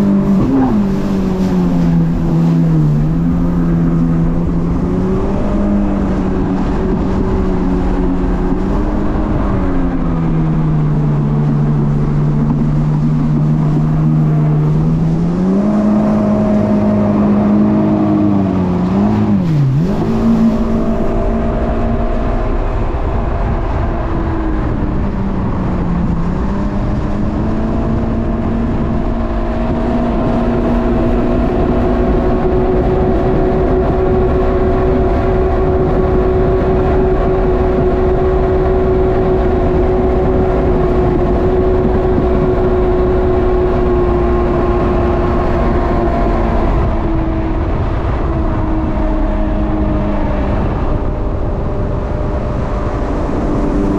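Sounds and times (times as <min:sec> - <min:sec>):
jet ski engine running: 0:00.0 - 0:53.9
rush of water: 0:00.0 - 0:53.9.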